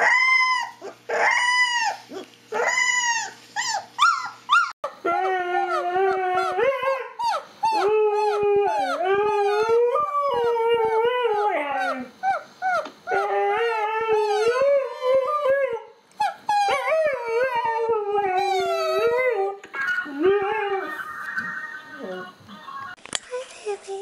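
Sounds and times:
dog howling: 2.6 - 15.9, 16.5 - 21.1.

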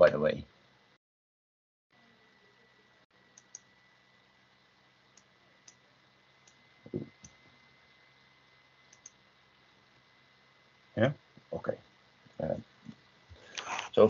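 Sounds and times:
faint steady hum: 0.0 - 1.0, 1.9 - 14.0
computer clicks: 3.4 - 3.7, 8.9 - 9.2.

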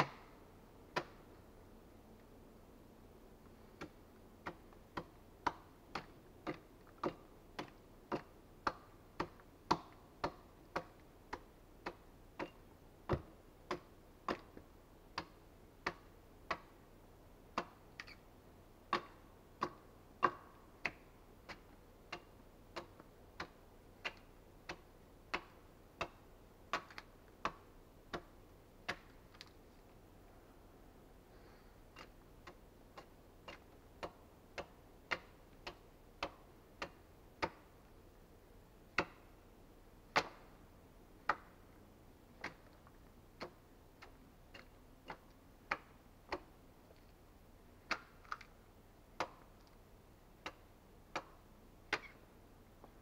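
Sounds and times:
axe chopping wood: 3.8 - 14.6, 22.8 - 29.4, 40.2 - 40.4.

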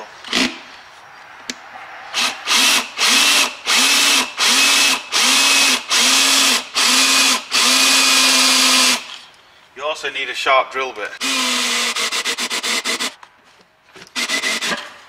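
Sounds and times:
power drill boring: 2.2 - 9.3, 11.2 - 13.2, 14.2 - 14.8.

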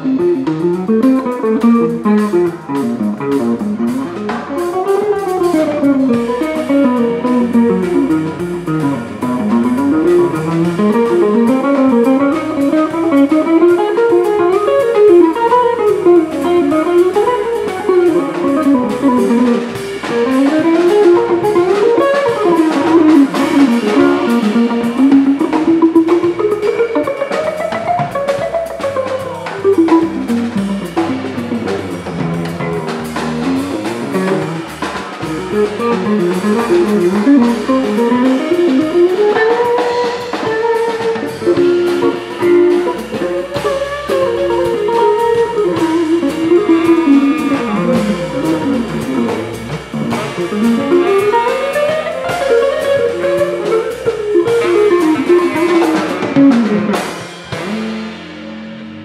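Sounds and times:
electric guitar lines: 0.0 - 59.0
jazz band playing: 0.0 - 59.0.

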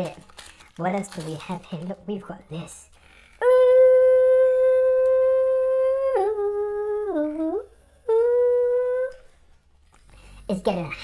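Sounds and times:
man humming long notes: 3.4 - 9.3.

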